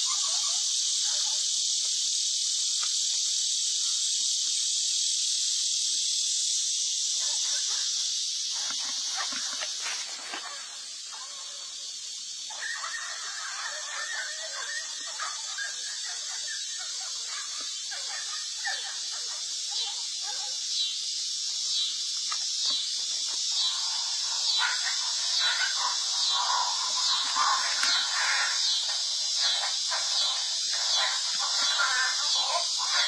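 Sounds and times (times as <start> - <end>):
dog squealing and yelping: 0.0 - 1.4, 7.2 - 11.8, 12.5 - 20.6, 23.6 - 33.0
steady high hiss: 0.0 - 33.0.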